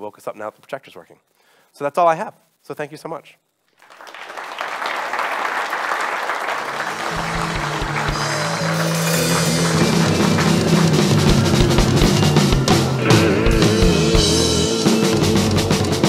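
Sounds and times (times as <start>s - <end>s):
audience applauding: 3.8s - 13.0s
music with drum beat and bass: 6.9s - 16.0s.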